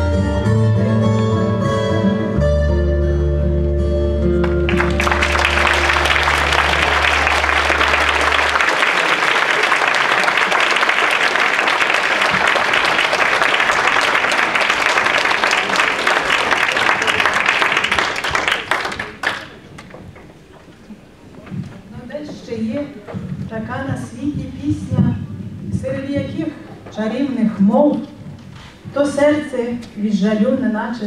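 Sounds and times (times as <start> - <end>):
held musical notes: 0.0 - 9.6
audience applause: 4.4 - 20.1.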